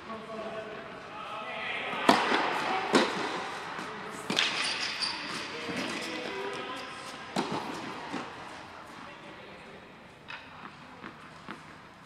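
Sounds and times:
tennis ball hit by racket: 2.0 - 4.7, 7.3 - 8.3.

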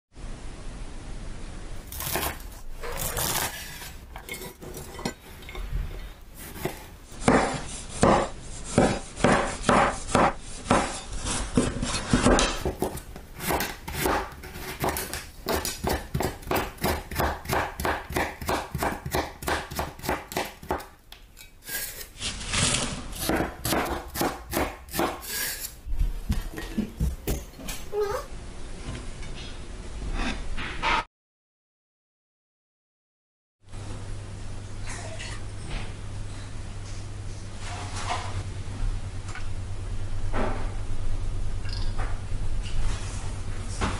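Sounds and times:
knife chopping on cutting board: 1.9 - 3.8, 6.4 - 21.0, 23.1 - 25.7.

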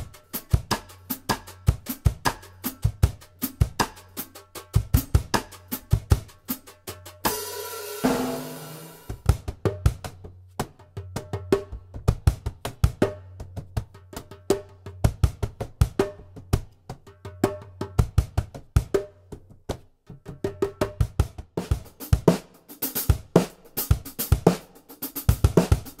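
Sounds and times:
hand drum slaps: 0.0 - 22.0
cajon kick beats: 0.0 - 22.3
snare and hi-hat rhythm: 0.0 - 26.0
cymbal crash: 7.3 - 9.2.

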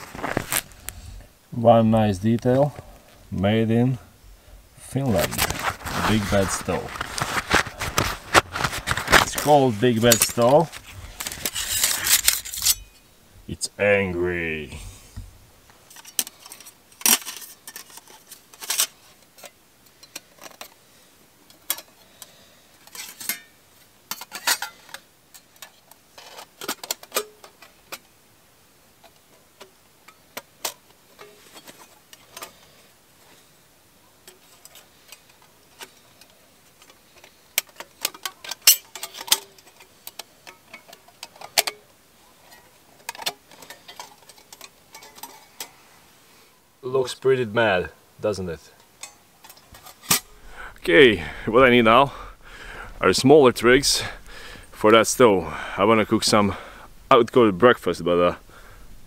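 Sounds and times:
steel panels clicking and clinking: 34.2 - 45.8.

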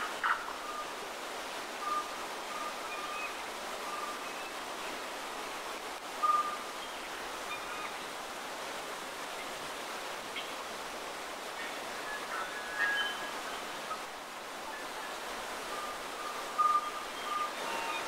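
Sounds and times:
waterfall and stream rushing: 0.0 - 18.0
whistled bird calls: 12.1 - 13.4, 15.7 - 18.0.

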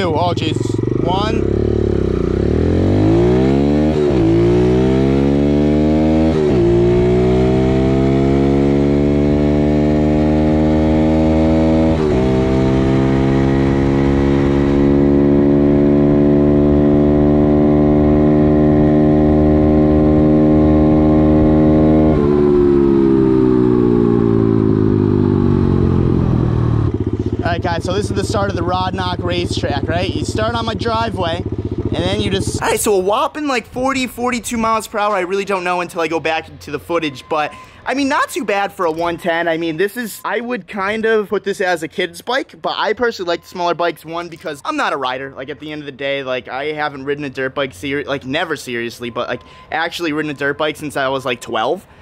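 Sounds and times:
dirt bike engine at full throttle: 0.0 - 35.1.

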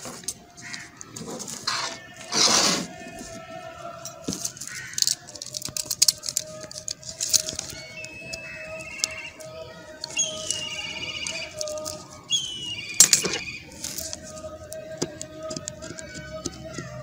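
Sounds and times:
trilled bird calls: 7.4 - 14.0.

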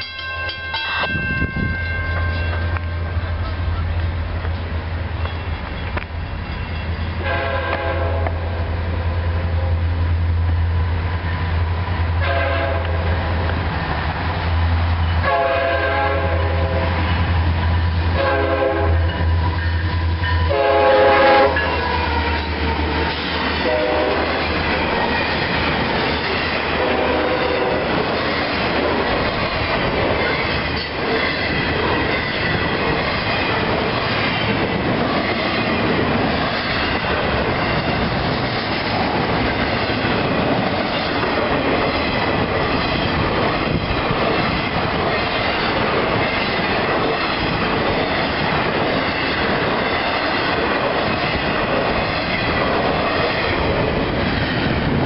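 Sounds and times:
train cars rolling past: 0.0 - 55.0
train horn blasts: 7.2 - 8.6, 12.2 - 13.2, 15.2 - 17.0, 18.1 - 19.6, 20.2 - 22.4, 23.6 - 24.4, 26.7 - 27.9.

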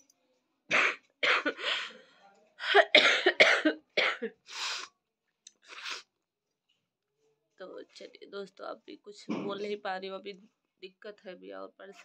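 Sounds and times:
woman coughing into cloth: 0.7 - 1.8, 2.6 - 4.4, 9.3 - 9.7.

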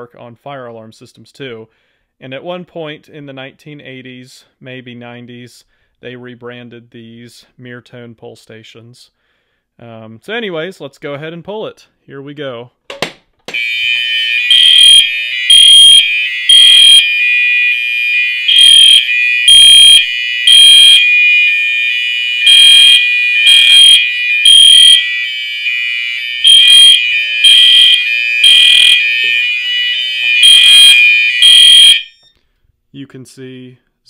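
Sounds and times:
fire alarm horn temporal blasts: 13.5 - 32.2
fire alarm horn high-low tone: 13.5 - 32.3.

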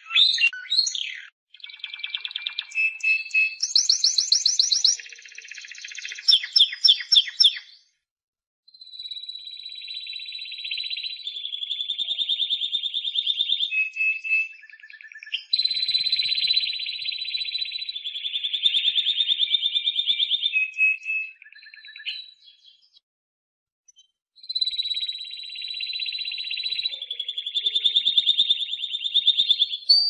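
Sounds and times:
canary singing rolling trills: 0.0 - 7.8, 24.5 - 30.0.

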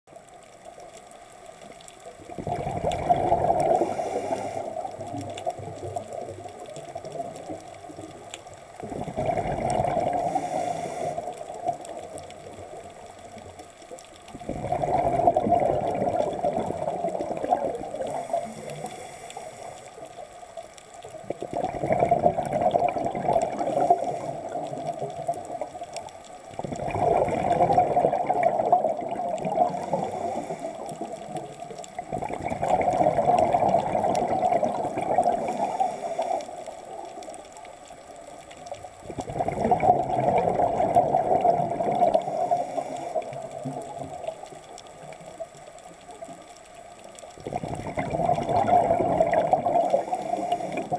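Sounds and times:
diver exhaling bubbles underwater: 2.3 - 7.4, 8.8 - 12.5, 14.4 - 19.1, 21.2 - 25.8, 26.6 - 37.2, 39.0 - 44.4, 47.4 - 50.9
faint hiss: 3.6 - 8.9, 9.6 - 14.5, 15.6 - 21.5, 22.9 - 26.6, 27.9 - 32.3, 33.6 - 39.3, 41.7 - 48.4, 49.2 - 50.9.

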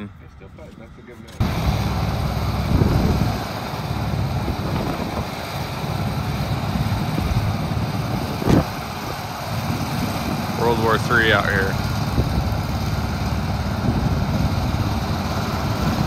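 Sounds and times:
golf cart rumble: 1.4 - 16.0
wind buffeting microphone: 1.4 - 16.0.

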